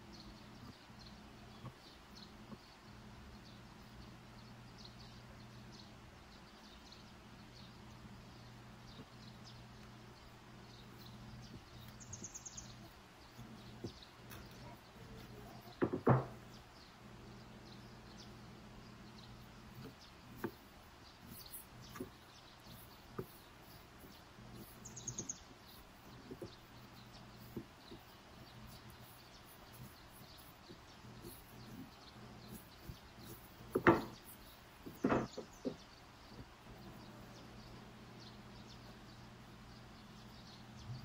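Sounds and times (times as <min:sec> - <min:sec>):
sharp wooden knocks: 0:15.7 - 0:16.5, 0:32.5 - 0:36.5
rolling pin rolling dough: 0:19.7 - 0:36.5.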